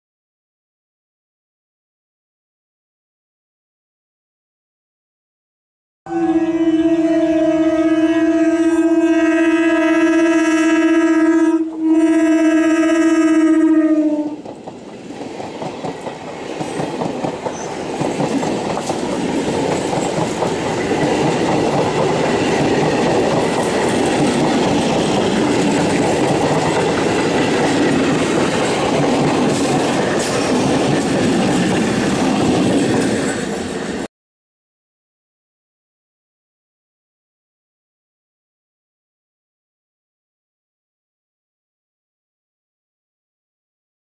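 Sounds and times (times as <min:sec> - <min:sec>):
train rumbling past: 0:06.1 - 0:34.1.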